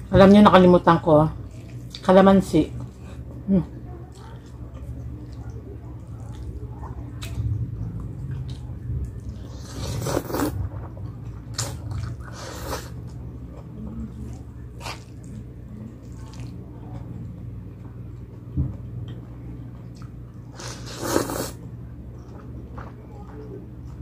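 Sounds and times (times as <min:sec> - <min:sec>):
steady low hum: 0:00.0 - 0:24.0
wet chewing and slurping: 0:04.1 - 0:13.2, 0:14.2 - 0:16.6, 0:19.9 - 0:21.6.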